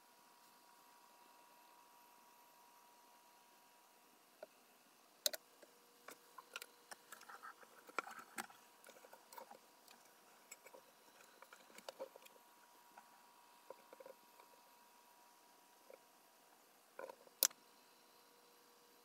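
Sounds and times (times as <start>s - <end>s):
faint clicks and ticks: 5.2s - 14.7s, 16.9s - 17.6s.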